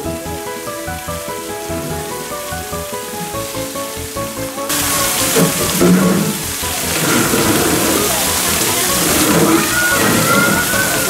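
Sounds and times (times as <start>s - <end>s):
noisy ambient hiss: 0.0s - 11.0s
low voice-like sounds: 4.7s - 11.0s.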